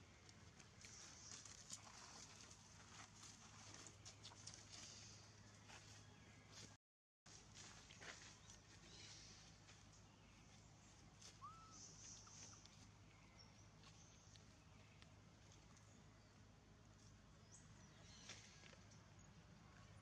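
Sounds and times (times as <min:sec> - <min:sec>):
faint chirps: 0:11.2 - 0:13.6.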